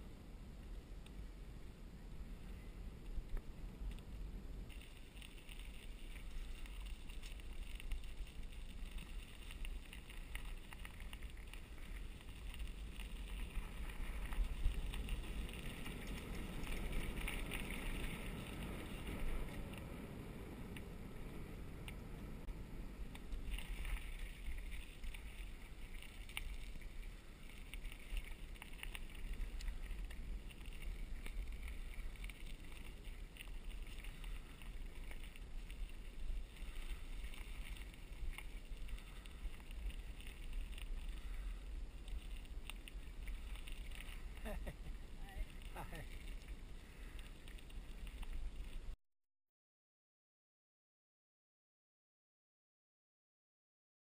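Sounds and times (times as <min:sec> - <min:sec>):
bicycle tyre rumble: 0:00.0 - 0:49.0
wind on microphone: 0:00.0 - 0:49.0
bike ticks and rattles: 0:00.5 - 0:49.0.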